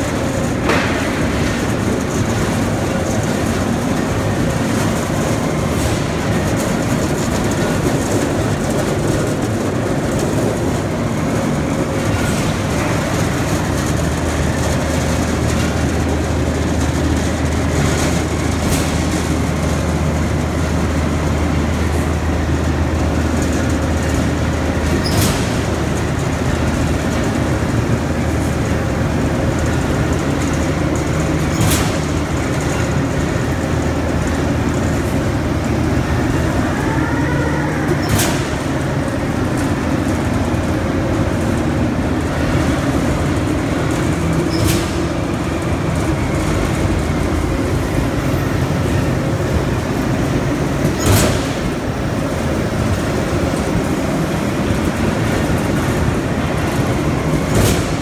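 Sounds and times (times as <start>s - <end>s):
machinery drone: 0.0s - 58.0s.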